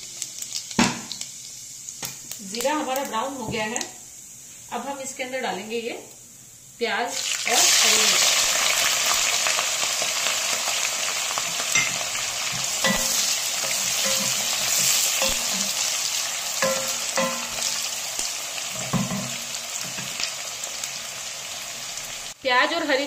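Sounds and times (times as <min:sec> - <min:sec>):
onions sizzling in hot oil: 0:00.0 - 0:23.0
wooden spatula knocking pot: 0:16.6 - 0:17.6.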